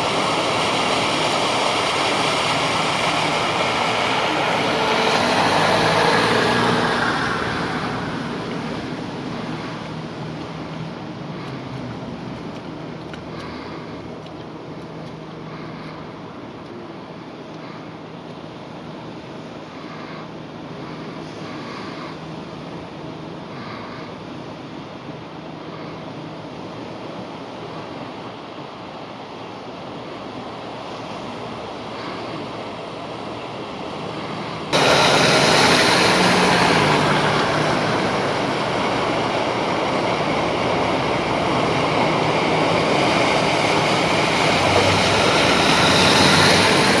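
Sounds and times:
water rushing from car tyres: 0.0s - 15.4s, 29.9s - 47.0s
car engine hum: 34.0s - 47.0s.

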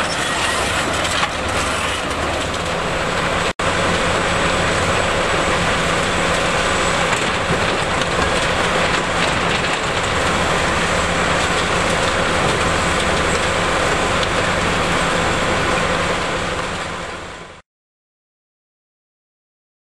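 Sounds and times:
rattle of crushed rubble: 0.0s - 3.5s, 4.8s - 14.7s
mobile crusher running: 0.0s - 17.5s.

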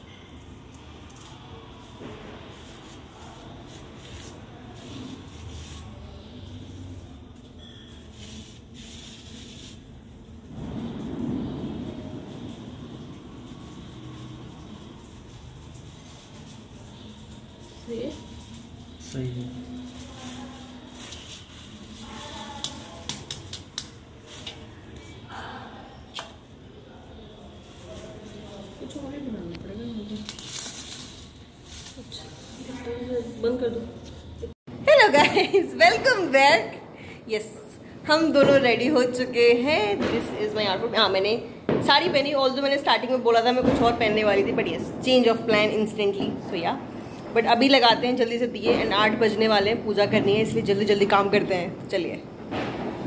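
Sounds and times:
hand scraping powder in plate: 0.1s - 19.0s
paper rustling: 30.1s - 33.4s.

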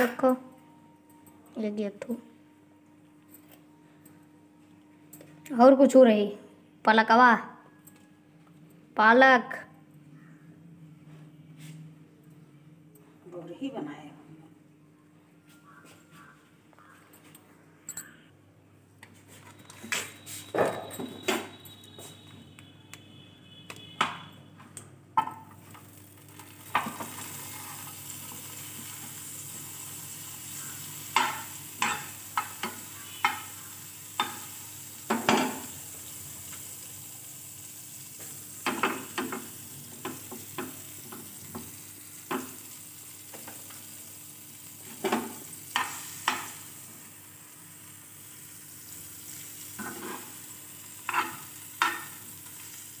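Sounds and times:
butter sizzling in a frying pan: 25.5s - 53.0s
metal spoon scraping a pan: 49.8s - 50.4s, 51.0s - 52.2s.

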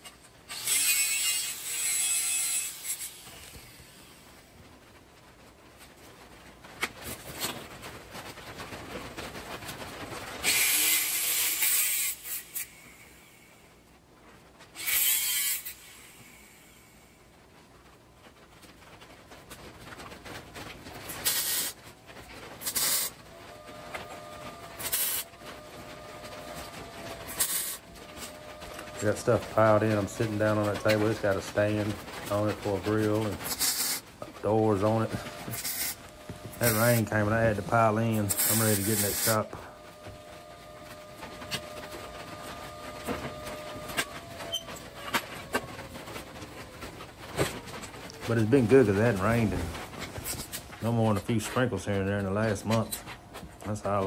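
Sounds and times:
welder tack welds: 0.0s - 4.2s, 10.4s - 13.3s, 14.8s - 16.8s, 21.1s - 21.8s, 22.6s - 23.2s, 24.7s - 25.3s, 27.2s - 40.2s.

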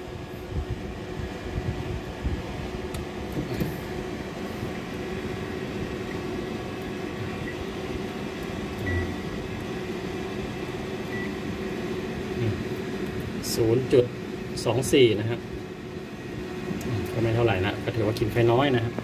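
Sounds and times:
cooling fans whirring: 0.0s - 19.0s
inverter electrical hum: 0.0s - 19.0s.

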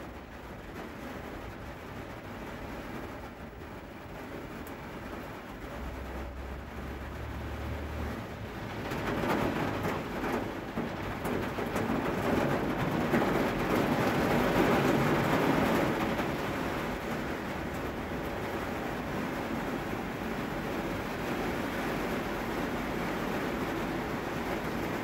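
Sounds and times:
rain falling: 0.0s - 25.0s.

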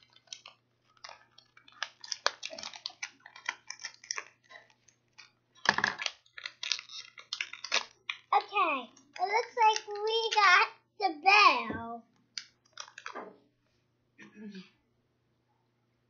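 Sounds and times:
foil bag crinkling and tearing: 0.0s - 10.4s, 12.6s - 13.2s.

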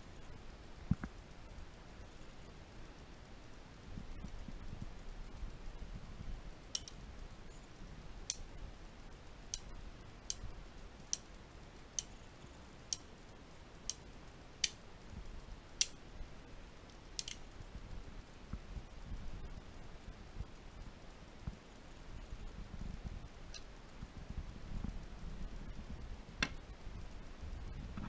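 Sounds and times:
revolver cylinder clicking: 6.6s - 16.2s, 16.8s - 17.7s.

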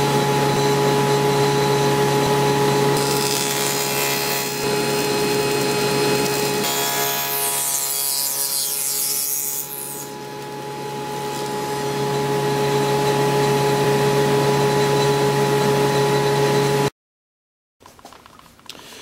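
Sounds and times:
table saw motor whine: 0.0s - 16.9s
saw blade cutting wood: 3.0s - 12.2s.

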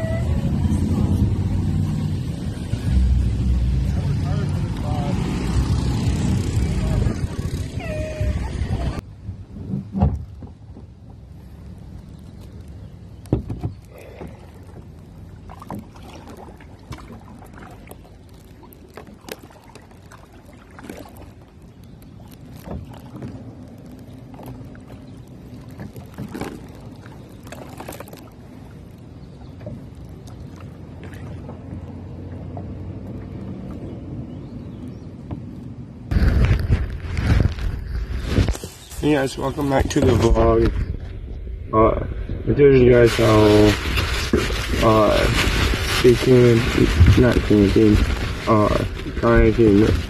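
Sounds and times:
wind and water rumble: 0.0s - 50.0s
knocks and clicks on hull: 9.2s - 11.3s, 12.3s - 34.2s, 34.8s - 38.7s.

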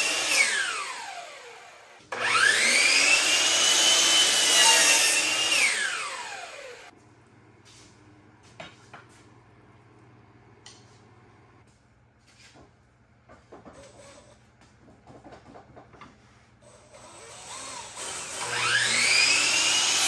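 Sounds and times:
miter saw cutting wood: 0.0s - 6.9s, 17.0s - 20.0s.

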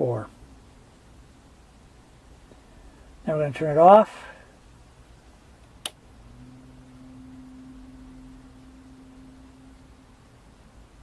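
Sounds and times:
faint low hum: 0.0s - 11.0s
switch click: 5.7s - 6.0s.

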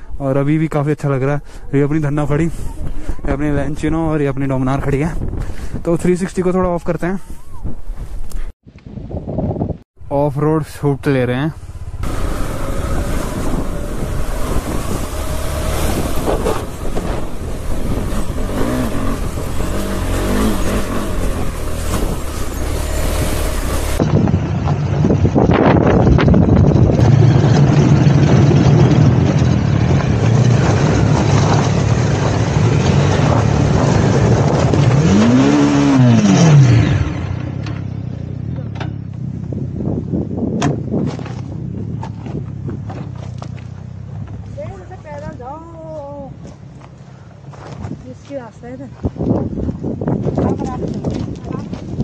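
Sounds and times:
motorcycle engines running: 10.9s - 52.0s.

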